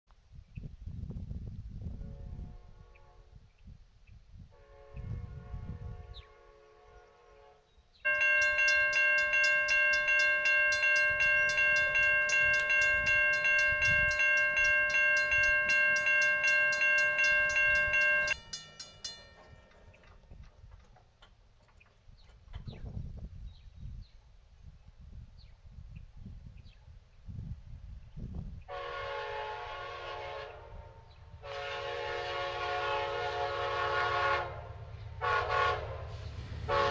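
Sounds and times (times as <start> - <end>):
train horn: 1.9 - 3.4, 4.5 - 18.4, 28.7 - 36.9
railroad crossing bell ringing: 8.1 - 20.5.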